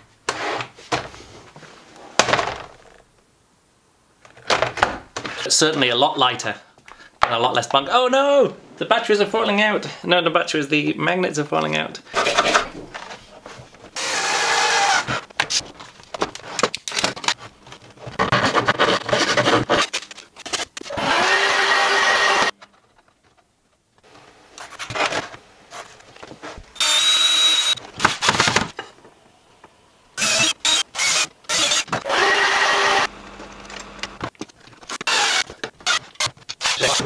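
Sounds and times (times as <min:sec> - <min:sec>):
wood scraping and knocking: 0:12.2 - 0:14.0
cordless drill whine: 0:14.0 - 0:15.1, 0:20.9 - 0:22.5, 0:26.8 - 0:27.8, 0:30.2 - 0:34.2, 0:35.1 - 0:36.0
handheld vacuum cleaner running: 0:20.9 - 0:22.5, 0:30.2 - 0:34.3.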